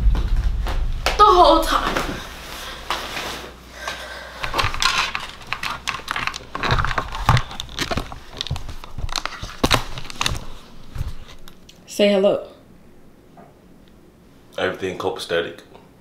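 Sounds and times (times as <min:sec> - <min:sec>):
crackles and soft knocks: 0:00.0 - 0:03.3, 0:04.5 - 0:11.7
fabric rustling: 0:01.9 - 0:03.6.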